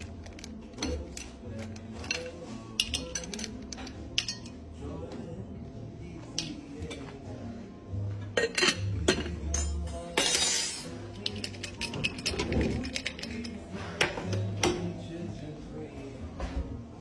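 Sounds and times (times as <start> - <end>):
tongs clinking against glass: 0.8 - 4.7.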